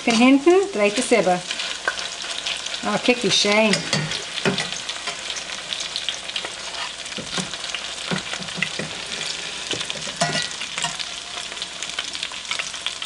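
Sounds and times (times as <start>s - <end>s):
potato cakes sizzling in hot oil: 0.0s - 13.0s
metal spatula scraping a pan: 3.4s - 7.5s, 8.2s - 11.1s.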